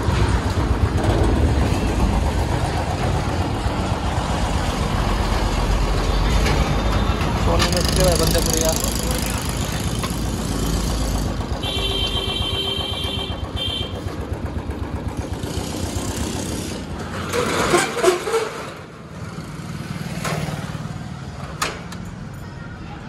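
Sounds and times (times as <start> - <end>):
motorcycle engine idling: 7.7 - 16.8.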